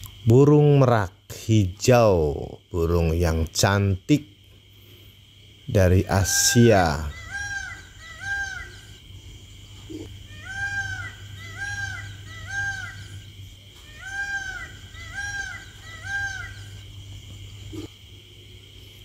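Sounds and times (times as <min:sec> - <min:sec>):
peafowl calling: 0:05.9 - 0:18.0.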